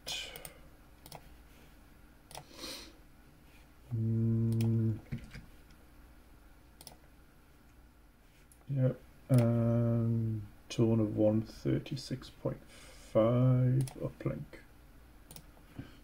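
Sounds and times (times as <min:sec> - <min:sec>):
man humming: 0:00.0 - 0:00.4, 0:03.9 - 0:05.1
computer mouse clicks: 0:00.3 - 0:01.3, 0:02.3 - 0:02.5, 0:04.5 - 0:05.4, 0:06.8 - 0:07.0, 0:13.8 - 0:14.0, 0:15.3 - 0:15.6.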